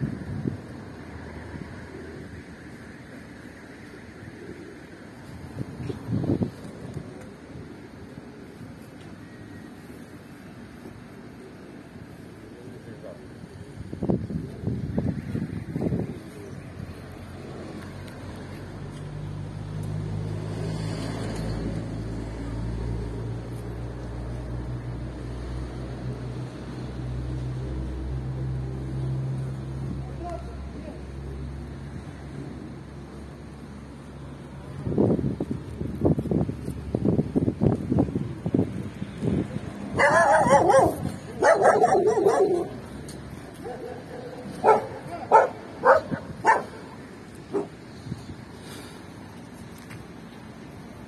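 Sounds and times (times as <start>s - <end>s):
dog barking: 40.0s - 42.8s, 43.6s - 46.9s.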